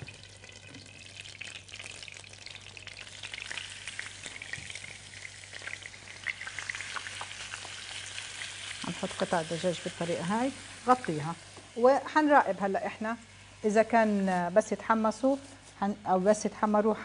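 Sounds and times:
chicken sizzling in frying pan: 0:00.0 - 0:12.0.

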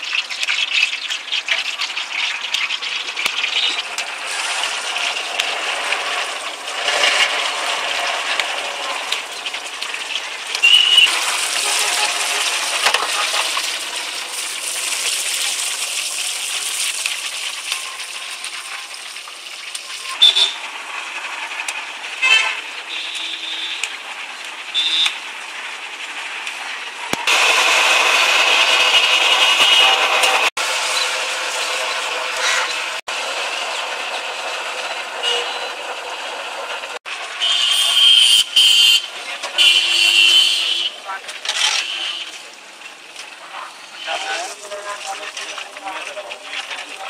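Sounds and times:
oil sizzling and bubbling: 0:00.0 - 0:47.0
horn toots: 0:10.6 - 0:13.7, 0:37.4 - 0:41.0.

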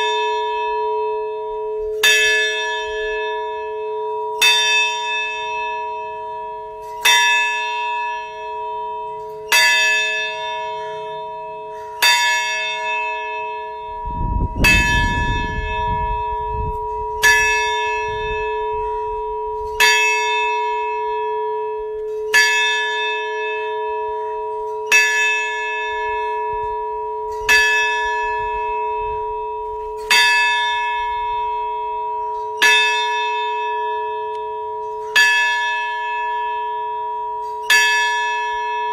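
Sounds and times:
large bell ringing: 0:00.0 - 0:38.9
low rumble: 0:13.9 - 0:17.2.

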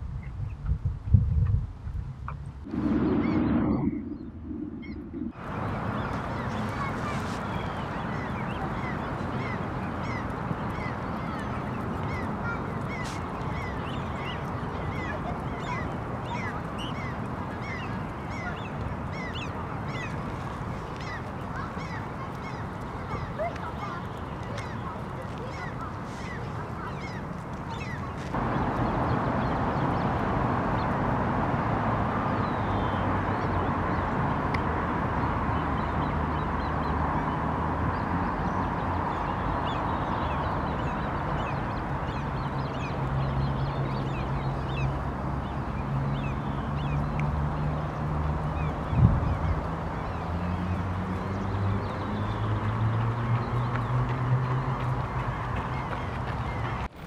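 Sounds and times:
steady background rumble: 0:02.6 - 0:07.0.

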